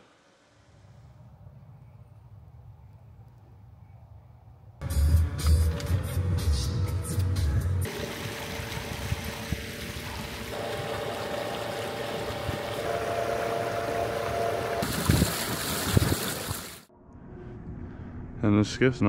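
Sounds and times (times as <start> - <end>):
motor hum: 7.8 - 16.9
rushing water: 7.9 - 16.9.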